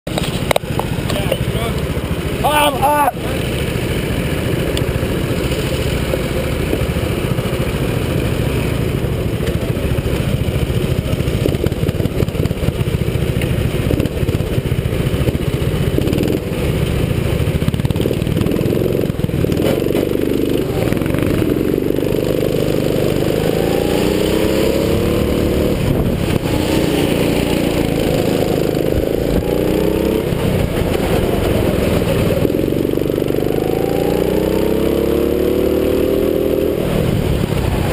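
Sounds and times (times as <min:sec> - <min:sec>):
go-kart engines idling and revving: 0:00.1 - 0:37.9.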